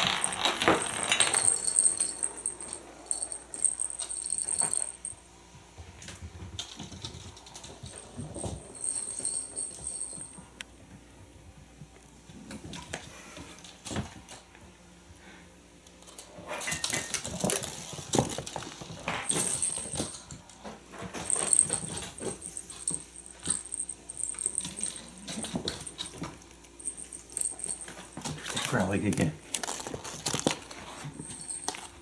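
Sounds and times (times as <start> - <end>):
toy bell jingling: 0.0 - 5.2, 8.0 - 10.4, 19.3 - 20.2, 21.3 - 29.0.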